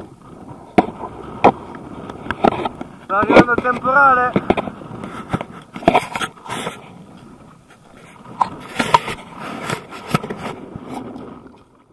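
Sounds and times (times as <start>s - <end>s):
wind buffeting microphone: 0.0s - 11.9s
camera handling scrapes and knocks: 2.3s - 6.9s, 7.7s - 11.1s.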